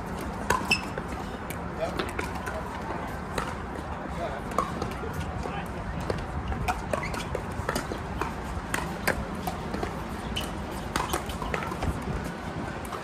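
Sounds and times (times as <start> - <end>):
ball bouncing on hard court: 6.0 - 12.0.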